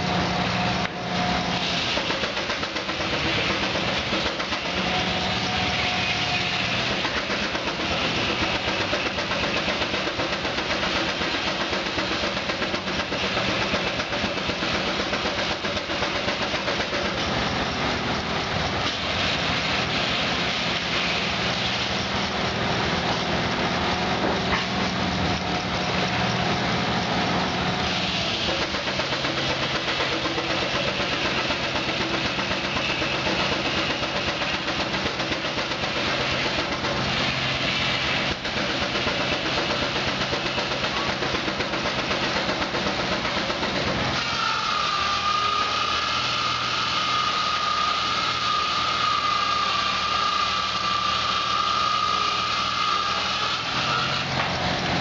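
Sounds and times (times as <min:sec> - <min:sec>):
steam engine driving sawmill: 0:00.0 - 0:55.0.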